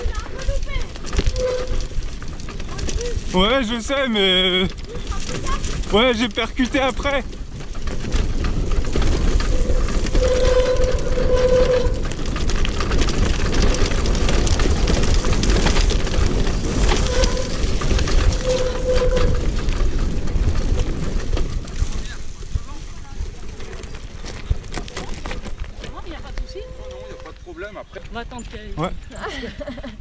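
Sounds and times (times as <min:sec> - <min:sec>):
wheelchair rattling over stones: 0:00.0 - 0:29.9
brake squeal: 0:01.1 - 0:03.3, 0:08.8 - 0:12.5, 0:15.2 - 0:19.8, 0:21.8 - 0:27.8.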